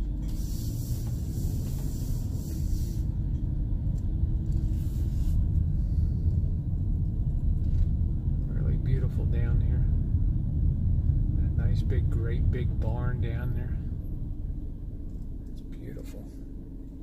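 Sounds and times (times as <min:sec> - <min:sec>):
van driving from inside cab: 0:00.0 - 0:17.0
hiss: 0:00.3 - 0:03.2, 0:04.6 - 0:06.1.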